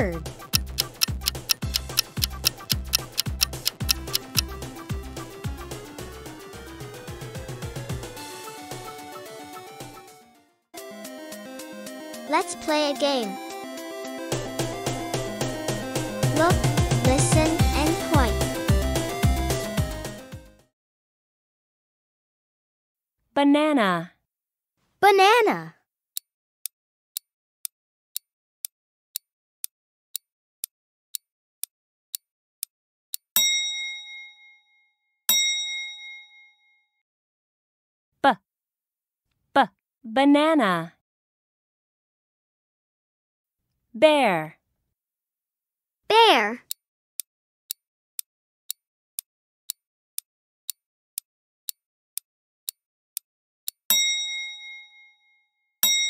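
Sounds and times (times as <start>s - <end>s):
timer ticking: 0.0s - 4.6s, 16.2s - 18.6s, 46.1s - 50.8s
bright bell ding: 53.9s - 55.1s.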